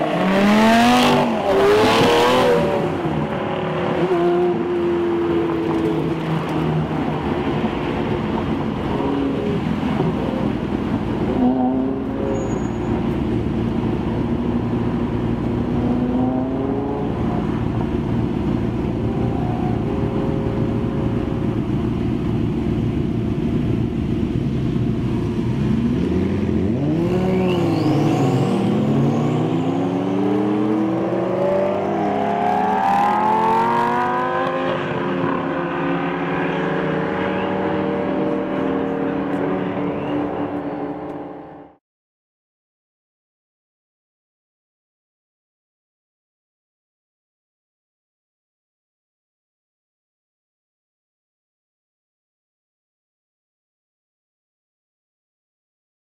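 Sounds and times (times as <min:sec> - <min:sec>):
car engines revving: 0:00.0 - 0:41.8
car engines idling: 0:17.1 - 0:26.0.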